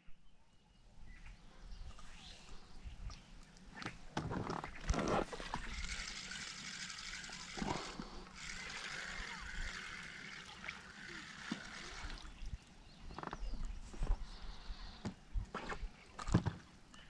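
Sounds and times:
fishing reel whirring and ticking: 0:05.4 - 0:12.1.

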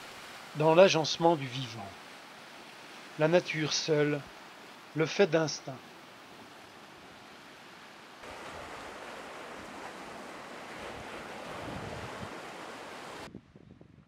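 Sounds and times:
surf washing over rocks: 0:00.0 - 0:13.3
wind buffeting microphone: 0:08.3 - 0:14.0.

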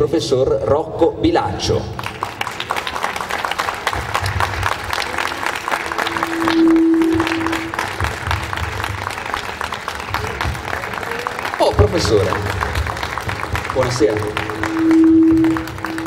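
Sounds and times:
audience applauding: 0:01.9 - 0:16.0
single held tone: 0:05.8 - 0:08.1, 0:14.4 - 0:16.0.

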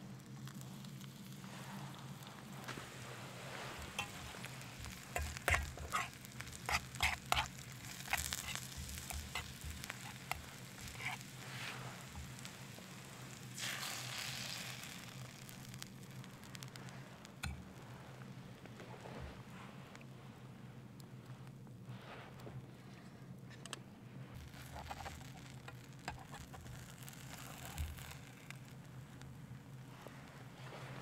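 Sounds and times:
onions sizzling in a frying pan: 0:00.0 - 0:17.6, 0:24.4 - 0:28.8
egg hissing in hot pan: 0:00.4 - 0:17.6, 0:24.4 - 0:28.8.

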